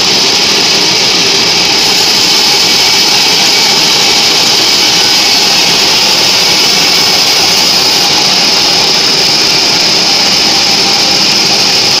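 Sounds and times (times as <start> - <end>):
band saw high-pitched whine: 0.0 - 12.0
hiss: 0.0 - 12.0.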